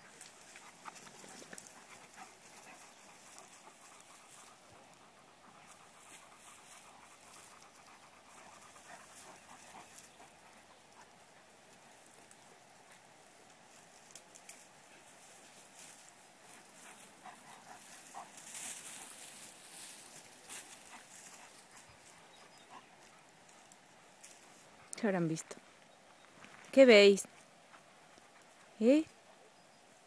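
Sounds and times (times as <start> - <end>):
dog panting: 0.2 - 13.1, 14.0 - 25.0.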